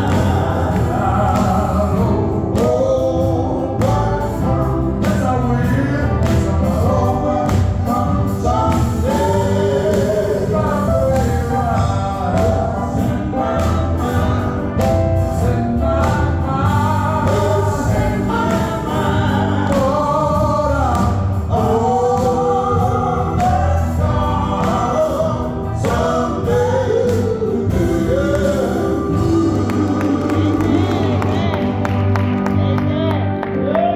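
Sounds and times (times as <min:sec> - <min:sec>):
band playing: 0:00.0 - 0:33.9
electric bass guitar: 0:00.0 - 0:33.9
male vocal quartet singing: 0:00.0 - 0:33.9.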